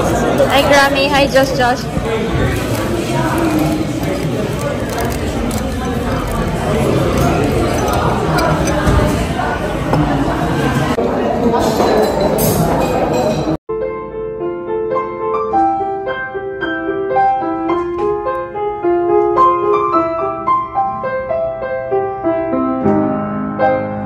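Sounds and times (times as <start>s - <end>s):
cafe chatter: 0.0s - 13.6s
solo piano music: 13.7s - 24.0s.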